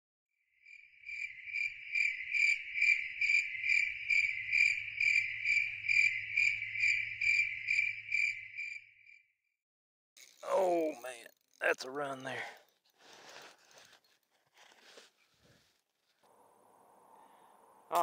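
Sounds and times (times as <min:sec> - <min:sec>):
cricket chirping: 0:00.6 - 0:09.2.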